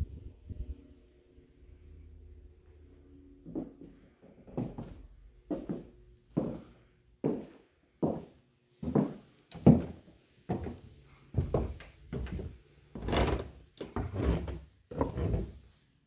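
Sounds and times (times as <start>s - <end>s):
footsteps on wooden stairs: 7.2s - 14.4s.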